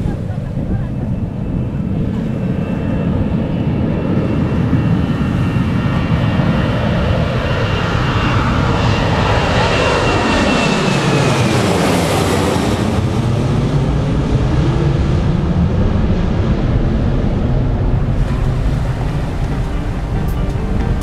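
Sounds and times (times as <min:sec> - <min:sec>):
wind on microphone: 0:00.0 - 0:09.6
jet engines roaring: 0:00.0 - 0:21.0.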